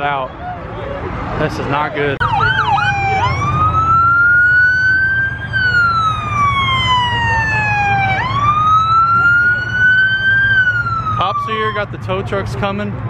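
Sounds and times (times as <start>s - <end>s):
police siren yelping and wailing: 2.2s - 12.2s.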